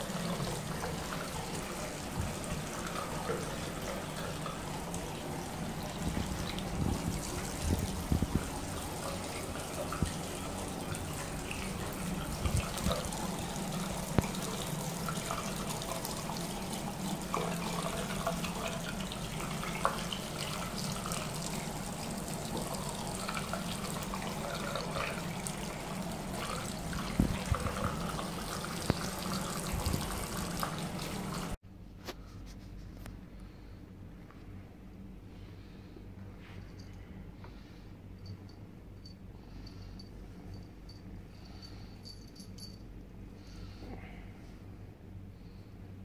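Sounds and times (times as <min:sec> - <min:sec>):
tap water running into sink: 0:00.0 - 0:31.6.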